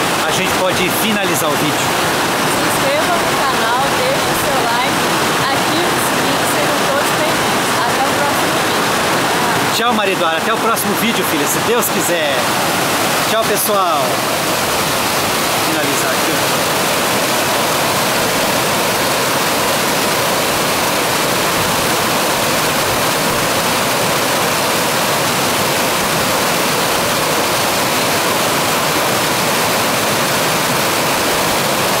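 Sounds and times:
river water rushing over rocks: 0.0 - 32.0.

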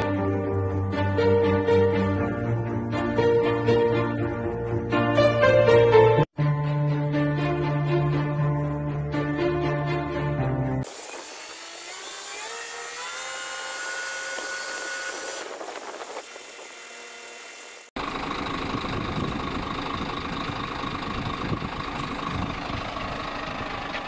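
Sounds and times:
diesel truck engine running: 18.0 - 24.0.

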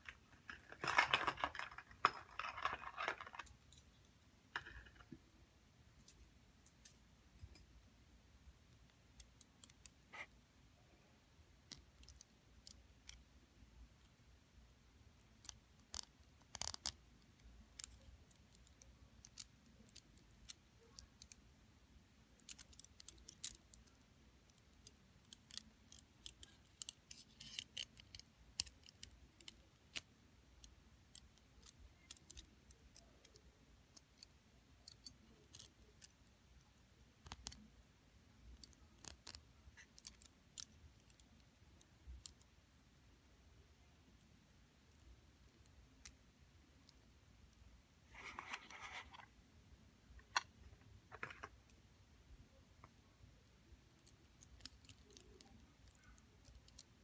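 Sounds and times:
metal bracelets and rings clicking: 0.0 - 5.1, 22.4 - 36.2, 38.6 - 41.4.

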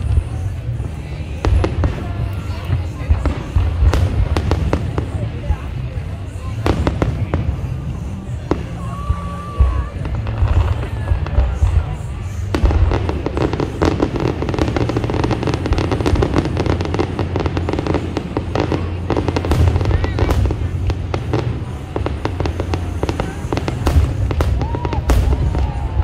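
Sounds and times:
fireworks crackling: 0.0 - 26.0
low rumble of fireworks booms: 0.0 - 26.0
fireworks whistling: 6.4 - 26.0.

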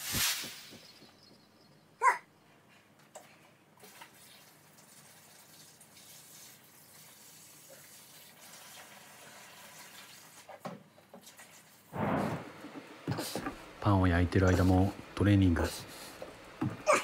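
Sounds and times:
water pouring from a bucket: 3.8 - 10.6.

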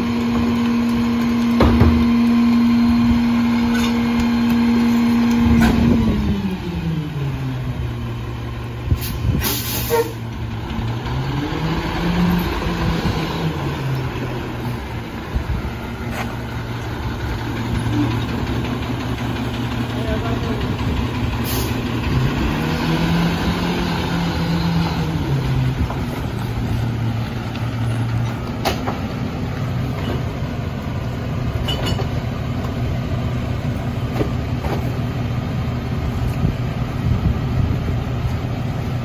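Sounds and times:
garbage truck diesel engine: 0.0 - 39.0
short air hiss: 9.0 - 10.2.

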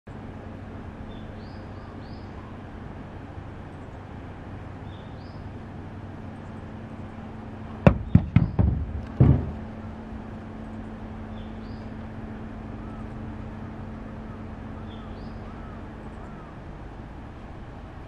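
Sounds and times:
low background hum: 0.1 - 18.0
apples knocking on tabletop: 7.9 - 9.6.

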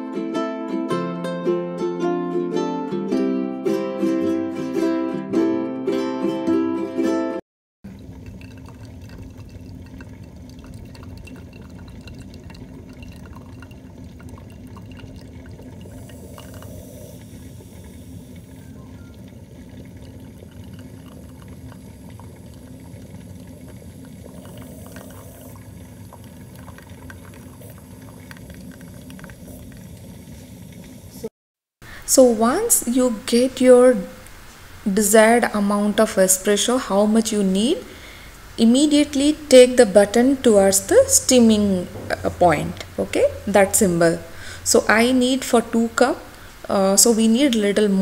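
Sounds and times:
espresso maker gurgling and sputtering: 7.9 - 31.3, 34.9 - 48.0.

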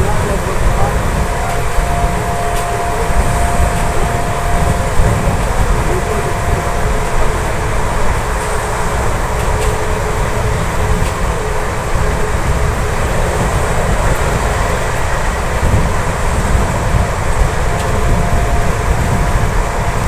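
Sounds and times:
faint steady whine: 0.0 - 20.0
rush of wind: 0.0 - 20.0
train wheels rolling: 0.0 - 20.0.

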